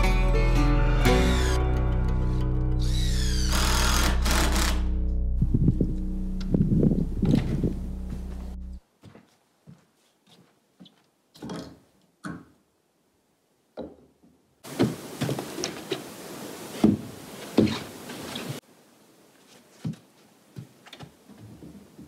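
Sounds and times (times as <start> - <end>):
heavy thuds: 5.4 - 8.8
steady hiss: 14.6 - 20.5.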